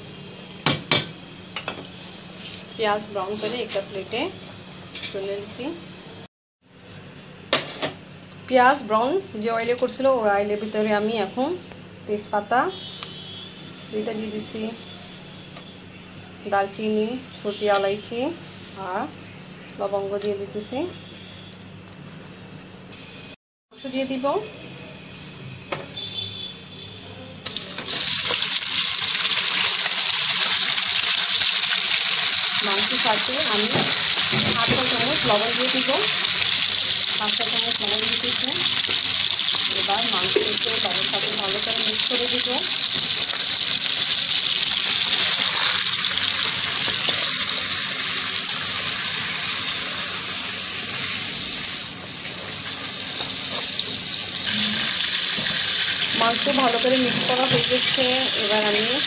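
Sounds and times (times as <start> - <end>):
meat sizzling in hot oil: 27.5 - 59.0.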